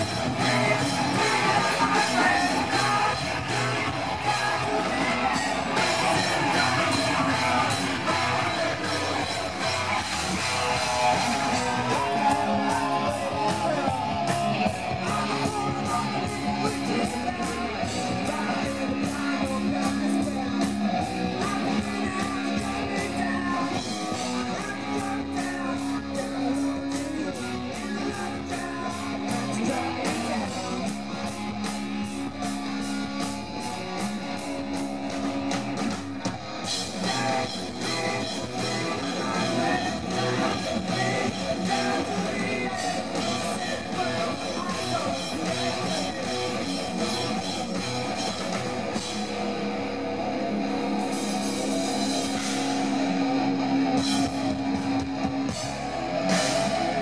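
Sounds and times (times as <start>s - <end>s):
person singing: 0.0s - 10.0s, 10.6s - 31.0s, 36.7s - 47.4s
bass guitar: 0.0s - 57.0s
drum kit: 0.0s - 57.0s
electric guitars: 0.0s - 57.0s.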